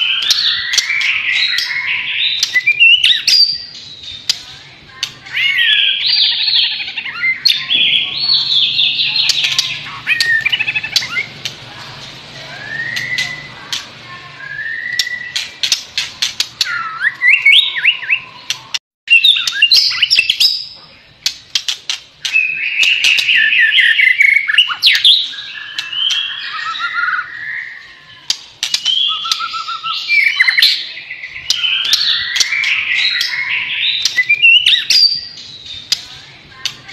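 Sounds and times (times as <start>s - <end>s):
bird singing whistled phrases: 0.0s - 4.2s, 12.4s - 13.7s, 14.3s - 15.7s, 16.6s - 20.7s, 22.2s - 35.8s
sharp bird clicks: 21.2s - 26.8s.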